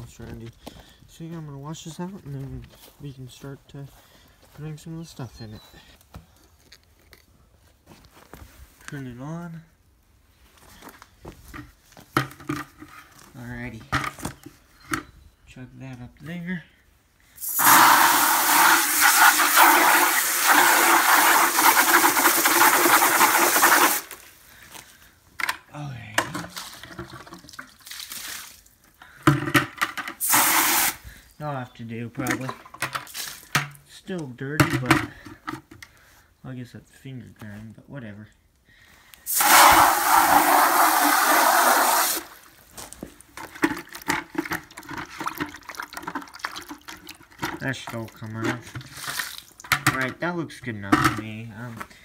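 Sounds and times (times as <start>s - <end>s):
water splashing in bucket: 17.4s - 24.2s, 26.5s - 28.7s, 43.4s - 49.7s
hose spraying into plastic bucket: 17.4s - 24.3s, 30.0s - 31.0s, 39.2s - 42.6s, 48.8s - 49.6s.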